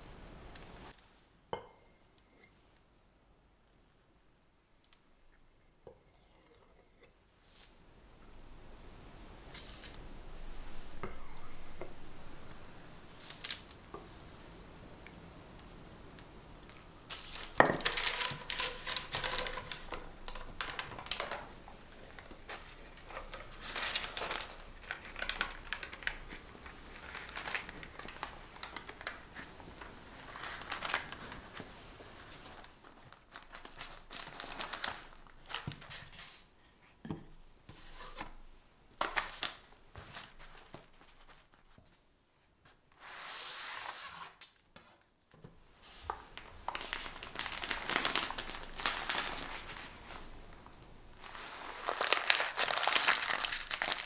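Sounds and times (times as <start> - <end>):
parchment paper rustling: 9.5 - 14.2, 16.7 - 36.5, 45.8 - 54.0.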